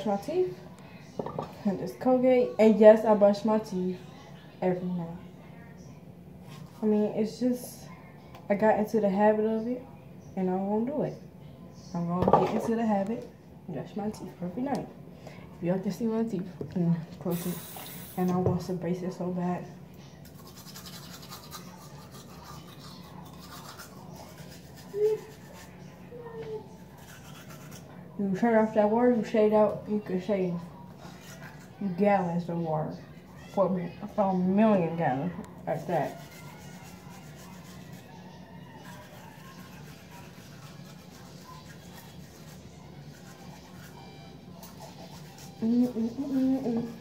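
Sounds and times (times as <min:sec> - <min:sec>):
toothbrush scratching on teeth: 0:06.4 - 0:07.1, 0:20.2 - 0:26.1, 0:26.7 - 0:28.0, 0:30.9 - 0:32.1, 0:35.7 - 0:47.0.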